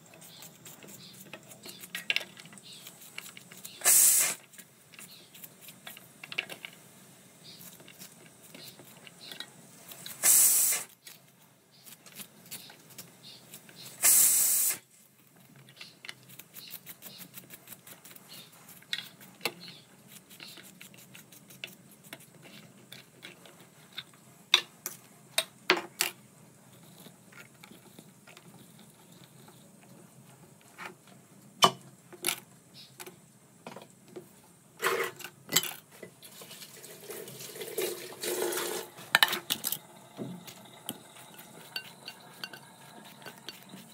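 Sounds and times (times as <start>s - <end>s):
running water: 36.2s - 39.2s
pots and utensils clinking: 36.4s - 43.9s.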